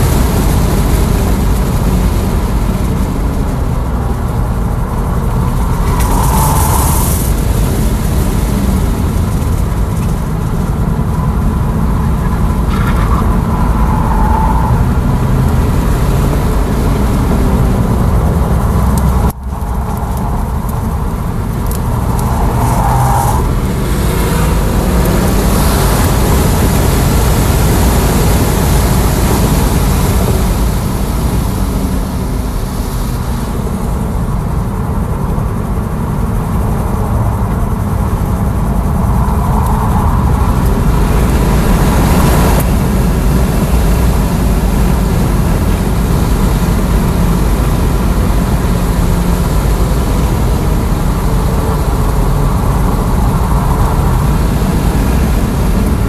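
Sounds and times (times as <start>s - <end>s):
road and wind noise in car: 0.0s - 56.0s
short high-pitched squeals: 5.6s - 7.6s.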